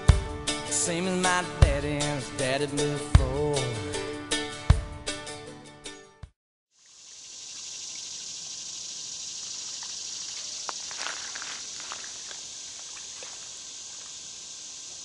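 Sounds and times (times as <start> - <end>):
outdoor ambience hiss: 6.8 - 15.0.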